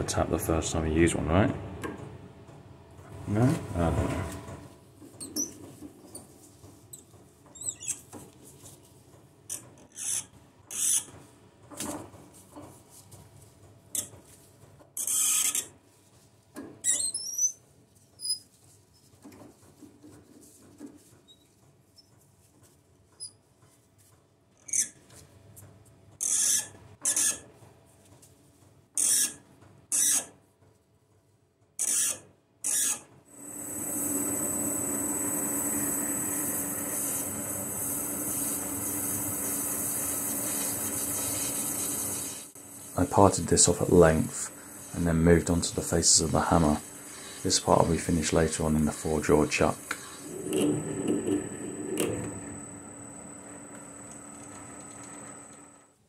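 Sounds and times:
hand tap squeaking and scraping: 0:06.9 - 0:08.3, 0:16.6 - 0:17.6
metal lathe whining: 0:33.4 - 0:55.8.

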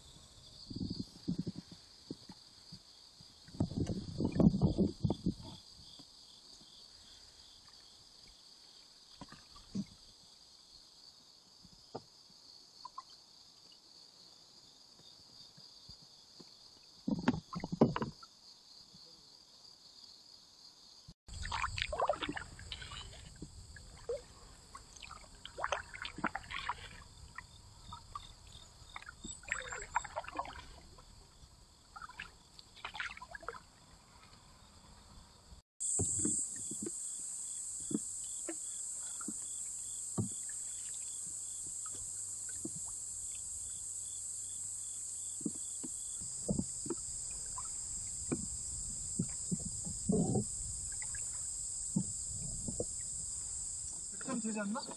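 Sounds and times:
paddles splashing in water: 0:21.3 - 0:34.2.

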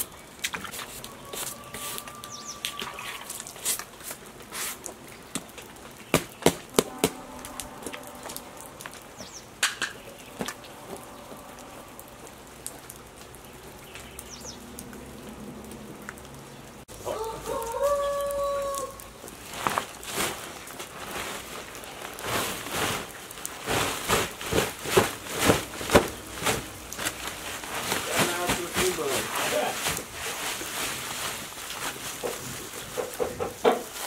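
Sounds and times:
steady rain: 0:00.0 - 0:34.0
rooster crowing: 0:01.0 - 0:03.4, 0:06.7 - 0:09.2, 0:10.1 - 0:12.5, 0:17.0 - 0:19.1.

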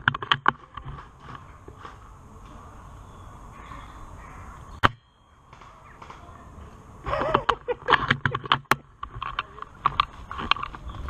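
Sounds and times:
dry leaves rustling and crackling: 0:00.0 - 0:04.0.

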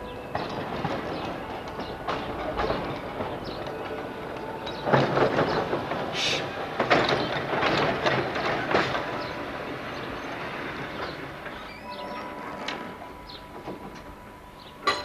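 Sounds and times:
tram wheels clattering on rails: 0:00.0 - 0:15.0.

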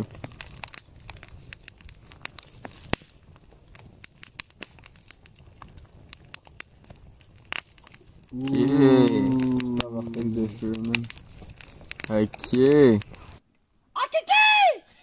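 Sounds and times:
campfire crackling and popping: 0:00.0 - 0:14.7.

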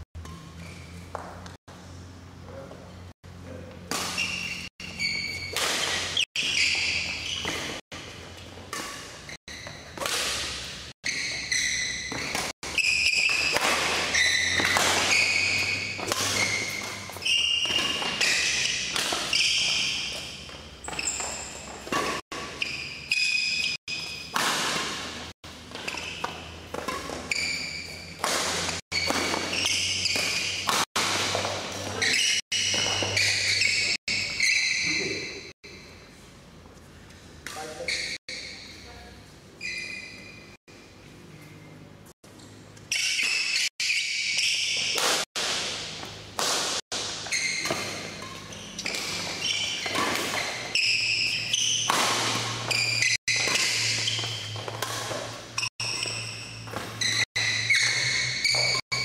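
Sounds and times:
shoes squeaking on court: 0:00.0 - 0:01.6, 0:03.8 - 0:36.9, 0:37.5 - 0:59.0
rackets striking shuttlecock: 0:12.1 - 0:34.6, 0:42.8 - 0:59.0.

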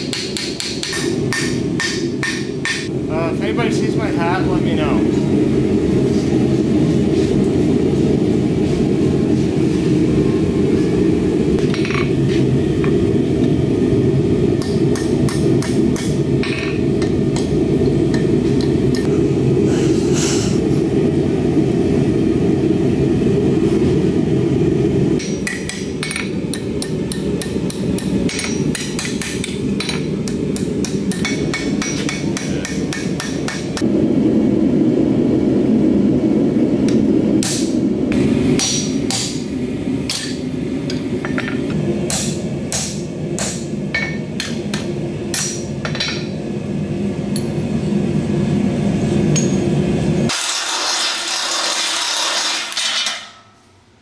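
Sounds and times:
hammer striking steel on anvil: 0:00.0 - 0:02.9, 0:14.6 - 0:19.1, 0:25.2 - 0:33.8, 0:36.9 - 0:37.7, 0:38.6 - 0:39.5, 0:40.1 - 0:46.4, 0:49.4 - 0:49.7.

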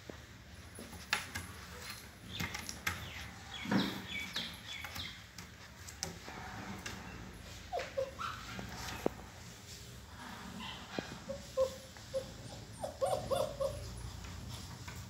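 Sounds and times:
puppy squeaking and whimpering: 0:07.4 - 0:08.6, 0:10.6 - 0:14.3.

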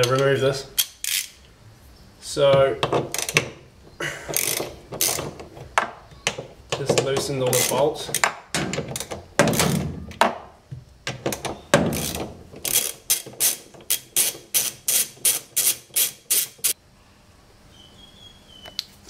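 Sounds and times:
ratchet clicks: 0:00.0 - 0:01.4, 0:03.1 - 0:03.5, 0:04.3 - 0:05.4, 0:06.8 - 0:09.8, 0:11.3 - 0:16.8.

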